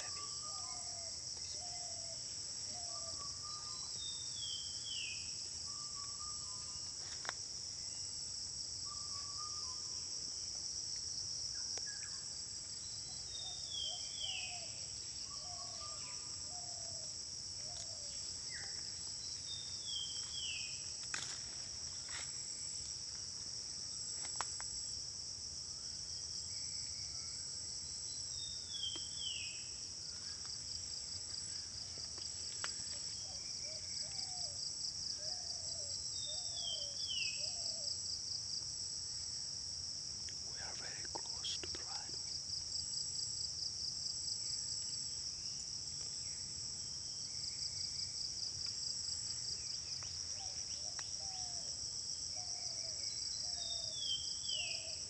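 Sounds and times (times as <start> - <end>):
insect chorus drone: 0.0 - 55.0.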